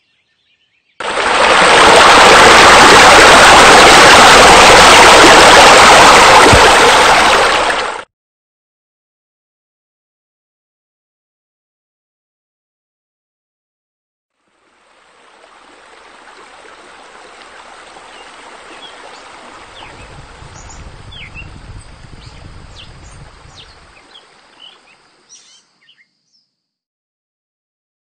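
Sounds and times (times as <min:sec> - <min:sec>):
running water: 0:01.0 - 0:08.1, 0:14.4 - 0:25.4
birds chirping: 0:18.1 - 0:26.5.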